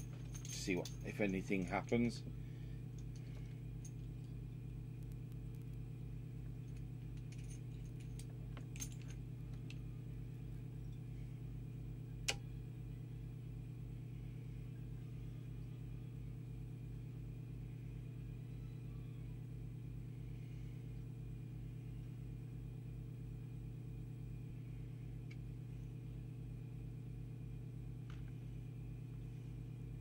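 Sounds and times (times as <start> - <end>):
faint metallic clinks: 0.0 - 2.2, 6.6 - 9.8
low mains hum: 0.0 - 30.0.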